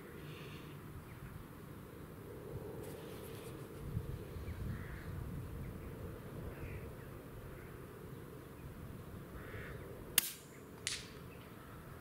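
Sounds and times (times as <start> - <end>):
low wind rumble: 0.0 - 12.0
crows cawing: 4.7 - 5.1, 9.3 - 9.8
rifle shot crack: 10.2 - 11.1.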